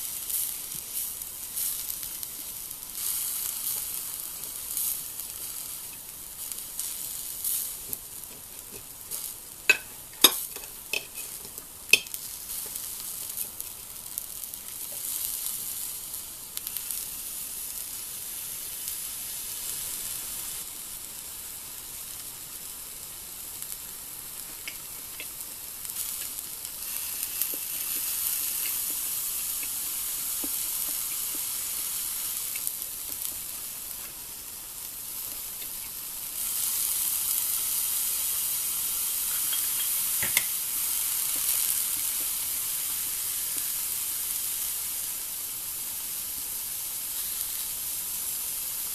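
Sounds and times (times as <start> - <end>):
vegetables sizzling on a griddle: 0.0 - 48.9
small pops and crackles: 23.7 - 34.2, 35.2 - 37.3, 39.2 - 43.8.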